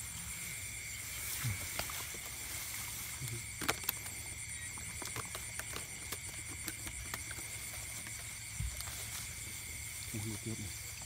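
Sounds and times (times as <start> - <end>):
grass rustling: 0.0 - 11.0
night insects trilling: 0.0 - 11.0
bamboo basket clicks and knocks: 3.2 - 4.2.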